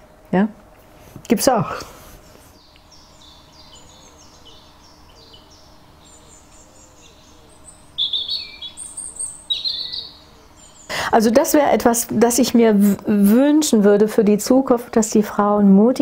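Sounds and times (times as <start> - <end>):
songbirds singing: 2.2 - 13.0.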